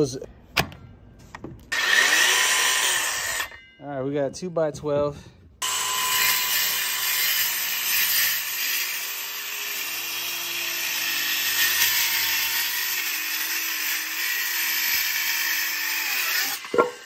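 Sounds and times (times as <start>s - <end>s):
circular saw cutting wood: 1.7s - 3.6s, 5.6s - 17.0s.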